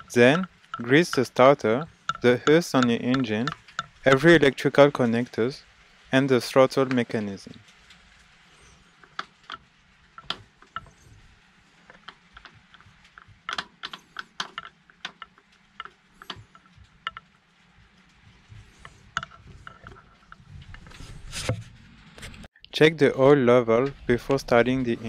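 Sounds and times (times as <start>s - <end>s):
light clicks and taps of handling parts: 0.0s - 5.4s, 6.7s - 21.1s.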